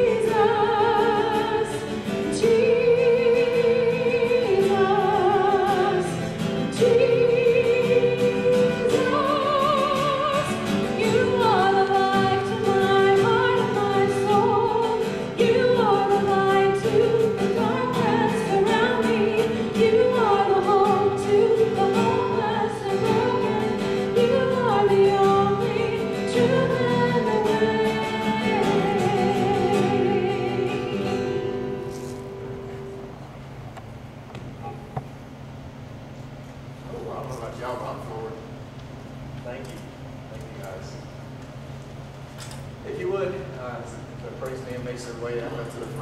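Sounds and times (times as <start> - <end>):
woman singing through microphone: 0.0 - 31.8
acoustic guitar: 0.0 - 38.4.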